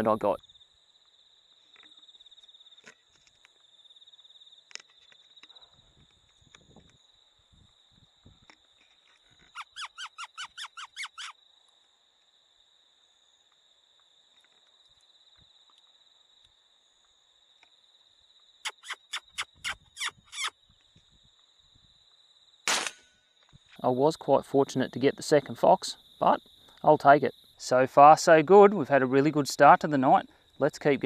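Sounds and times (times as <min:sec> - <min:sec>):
predator call squeaks: 0:09.4 - 0:11.4, 0:18.6 - 0:20.6.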